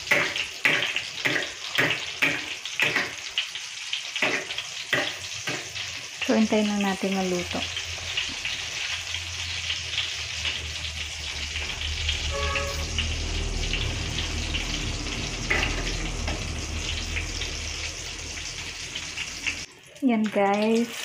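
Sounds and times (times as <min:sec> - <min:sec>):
omelette sizzling in oil: 0:00.0 - 0:21.0
low hum: 0:07.6 - 0:19.7.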